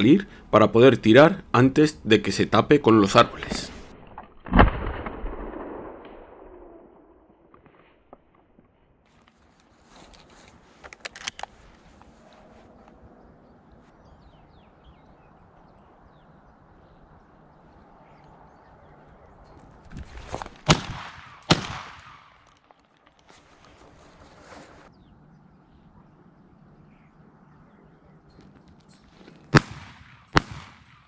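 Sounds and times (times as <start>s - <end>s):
shotgun shots: 4.4s - 7.2s, 20.6s - 22.4s, 29.5s - 31.0s.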